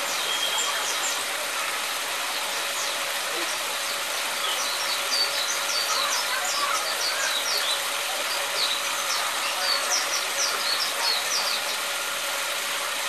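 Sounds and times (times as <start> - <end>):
small songbirds chirping: 2.6 - 11.8.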